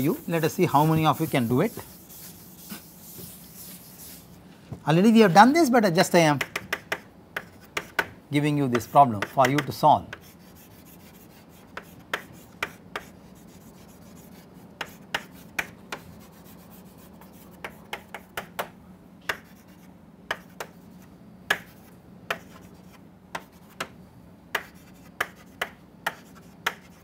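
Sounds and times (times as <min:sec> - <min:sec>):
chalk tapping and scraping blackboard: 0:00.0 - 0:04.4, 0:06.4 - 0:27.0.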